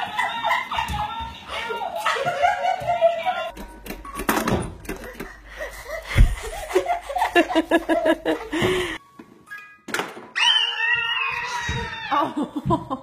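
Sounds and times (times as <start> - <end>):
toddler laughing: 5.0 - 8.8.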